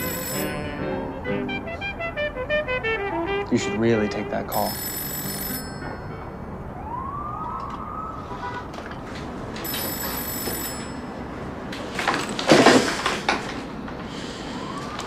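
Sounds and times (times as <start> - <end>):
telephone ringing: 0.0 - 1.3, 4.5 - 6.5, 9.5 - 12.0.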